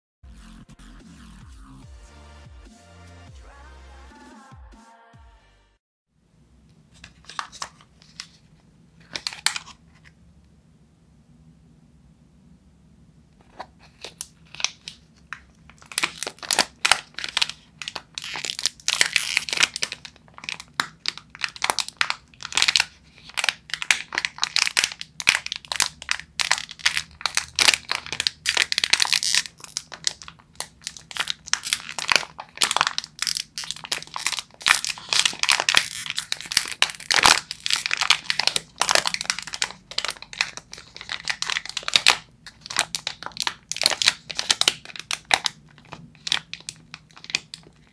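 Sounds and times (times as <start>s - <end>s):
plastic wrapper crinkling: 6.9s - 10.1s, 13.4s - 47.9s.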